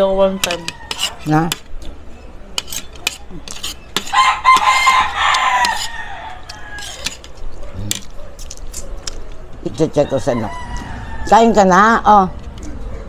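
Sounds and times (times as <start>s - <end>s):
rooster crowing: 0.1s - 1.3s, 4.0s - 7.2s, 9.8s - 12.0s
spoons clicking on plates: 2.6s - 9.2s.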